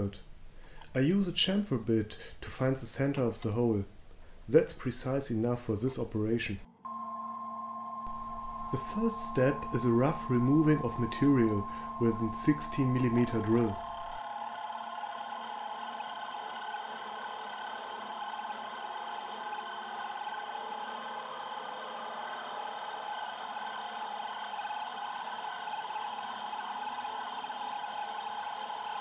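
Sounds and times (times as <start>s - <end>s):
milling machine motor humming: 6.9s - 29.0s
drill cutting metal: 8.0s - 14.2s.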